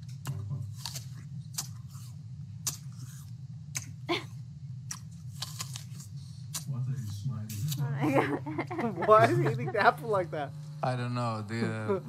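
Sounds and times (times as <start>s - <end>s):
apple crunching: 0.0s - 4.0s, 4.8s - 7.9s.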